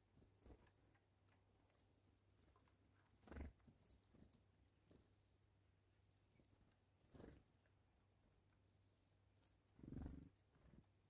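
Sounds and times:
soft ticks: 0.6s - 3.1s, 5.8s - 6.9s
faint high chirps: 3.8s - 4.5s.

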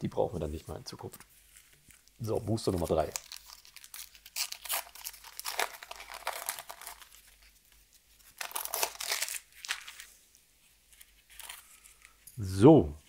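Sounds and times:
foil wrapper crinkling: 1.5s - 10.2s, 10.9s - 12.2s.

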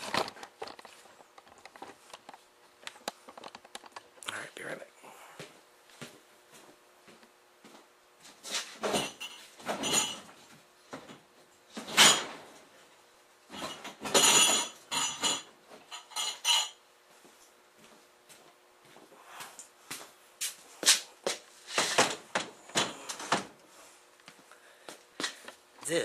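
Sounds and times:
metal objects clanking: 8.8s - 10.3s, 11.8s - 12.5s, 13.5s - 16.8s.

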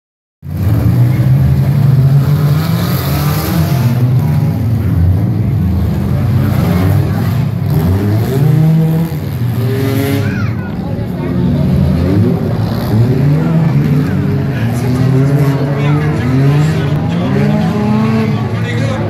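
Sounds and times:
car engines revving: 0.4s - 19.0s.

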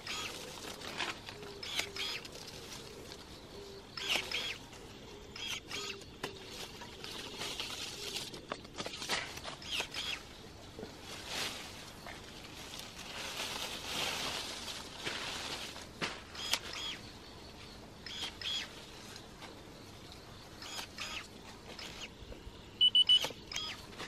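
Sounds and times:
electric shears whirring and snipping: 0.0s - 2.3s, 4.0s - 4.6s, 5.4s - 6.4s, 8.8s - 10.2s, 16.1s - 17.0s, 20.6s - 22.1s
leaves rustling: 0.0s - 22.2s
short high beeps: 22.8s - 23.3s.

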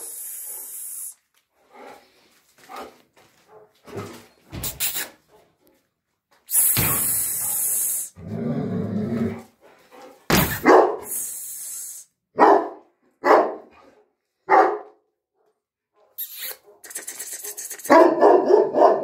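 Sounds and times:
dog barking: 2.7s - 4.2s, 10.5s - 11.1s, 12.4s - 15.1s, 17.5s - 19.0s.

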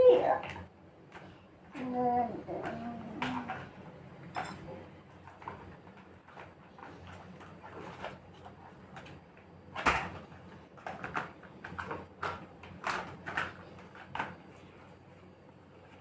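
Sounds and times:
plastic toy cars clattering: 2.5s - 3.7s, 5.3s - 14.4s.

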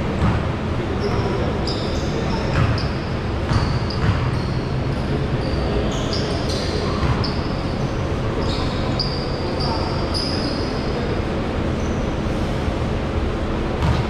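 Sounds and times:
hubbub of voices: 0.0s - 14.0s
basketballs bouncing on hardwood: 0.2s - 0.5s, 2.6s - 2.9s, 3.5s - 4.4s, 7.0s - 7.4s, 13.8s - 14.0s
sneaker squeaks: 0.2s - 11.1s, 11.8s - 12.1s.

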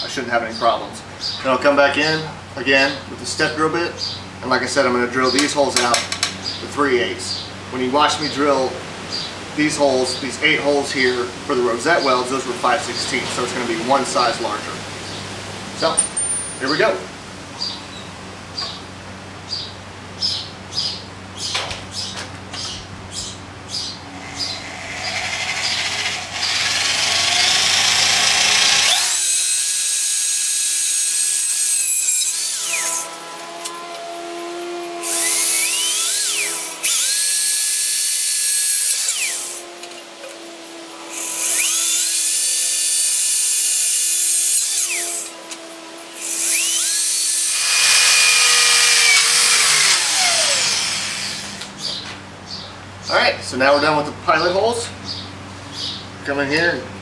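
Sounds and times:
electric drill boring metal: 24.2s - 51.7s.

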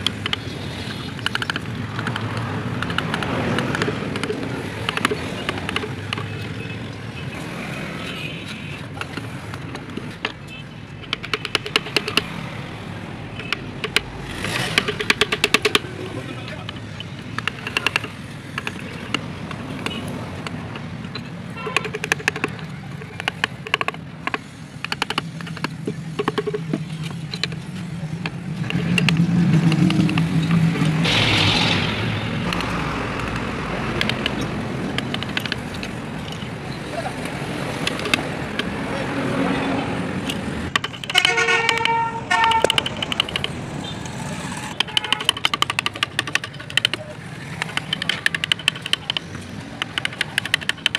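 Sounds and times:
traffic noise: 0.0s - 50.9s
motor vehicle passing: 11.7s - 20.7s, 27.6s - 40.8s, 42.2s - 44.8s
vehicle horn: 21.6s - 21.9s, 41.1s - 42.8s.

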